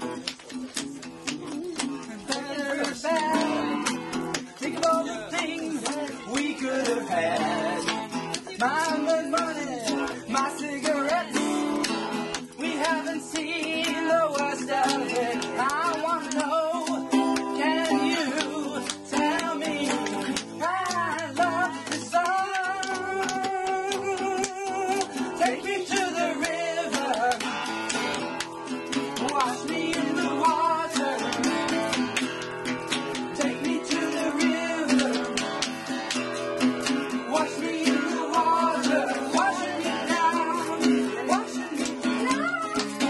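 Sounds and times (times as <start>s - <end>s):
acoustic guitar strumming: 0.0s - 43.0s
people singing along: 1.5s - 32.1s, 33.1s - 36.0s, 36.6s - 43.0s.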